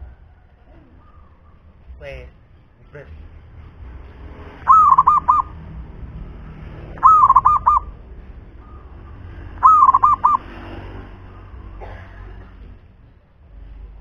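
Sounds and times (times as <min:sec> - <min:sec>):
dove cooing: 0:04.6 - 0:05.6, 0:06.9 - 0:08.0, 0:08.6 - 0:10.5.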